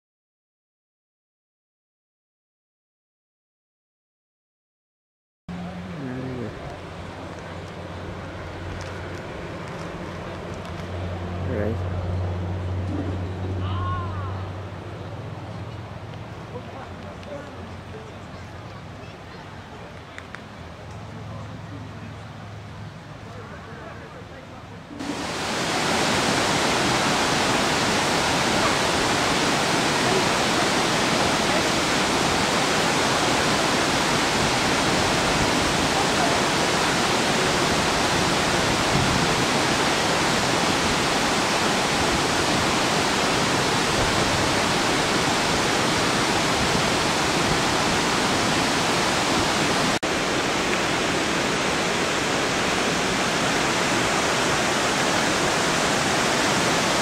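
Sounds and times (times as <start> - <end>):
creek water tumbling: 5.6 - 11.4, 25.0 - 57.0
waterfall rushing: 25.0 - 57.0.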